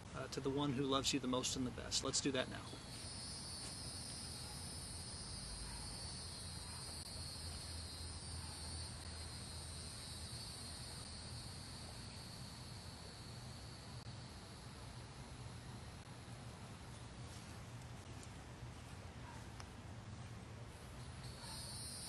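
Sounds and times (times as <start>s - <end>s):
insects chirring: 1.4s - 17.0s, 21.0s - 22.0s.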